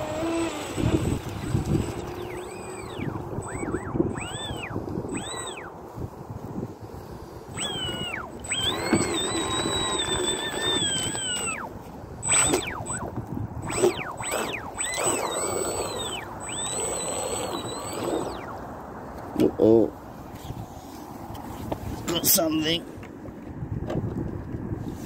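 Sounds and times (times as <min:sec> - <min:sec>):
rc speedboat electric motor whining: 0:00.0 - 0:05.8, 0:07.3 - 0:18.6
thin steady high whine: 0:00.0 - 0:18.6.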